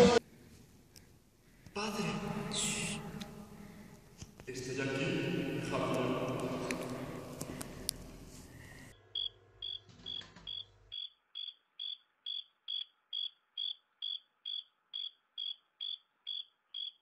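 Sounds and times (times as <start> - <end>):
cricket chirping: 9.1 - 17.0.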